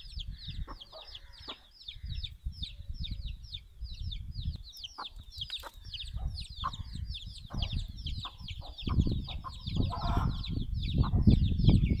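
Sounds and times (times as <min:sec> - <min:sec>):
chicks peeping: 0:00.0 - 0:12.0
hen clucking: 0:00.6 - 0:01.7, 0:04.8 - 0:11.4.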